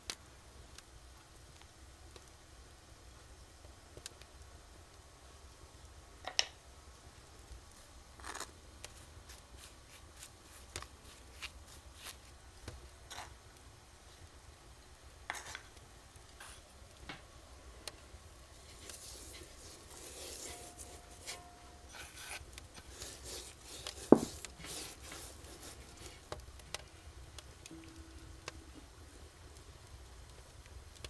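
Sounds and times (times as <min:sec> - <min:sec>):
hands rubbing and handling: 0:07.8 - 0:13.4, 0:18.5 - 0:26.9.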